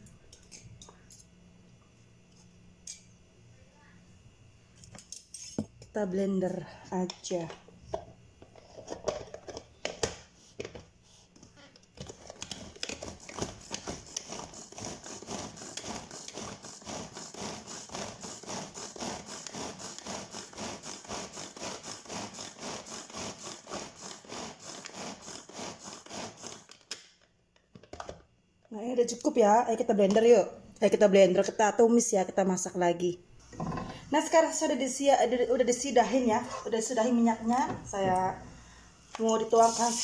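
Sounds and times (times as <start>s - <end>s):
food chopper ratcheting and whirring: 12.0s - 27.0s.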